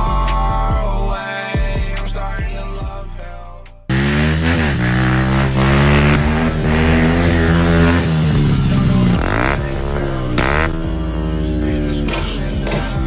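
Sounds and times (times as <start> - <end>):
motorbike engine revving: 3.9 - 13.0.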